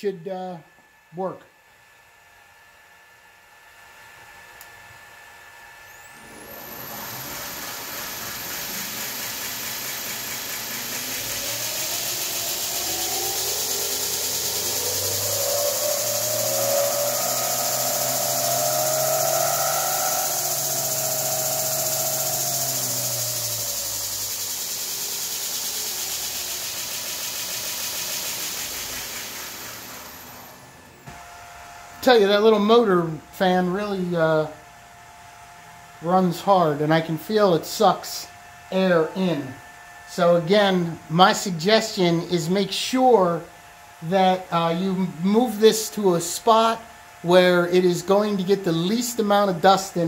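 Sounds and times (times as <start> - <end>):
thin high whine: 5.8 - 34.7, 36.0 - 50.0
belt grinder motor running: 5.9 - 31.0, 38.8 - 50.0.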